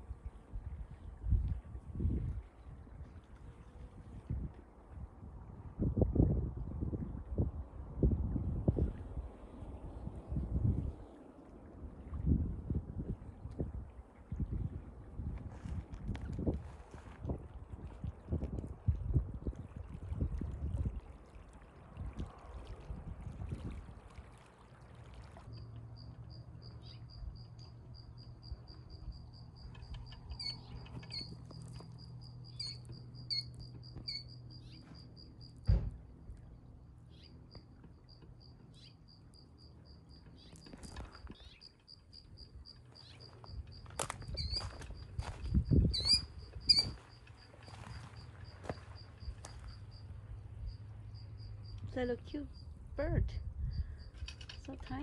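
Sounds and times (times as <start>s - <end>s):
insect trilling: 25.5s - 35.5s, 45.6s - 50.0s
heavy thump: 35.6s - 36.0s
footsteps on twigs and mud: 43.0s - 45.6s.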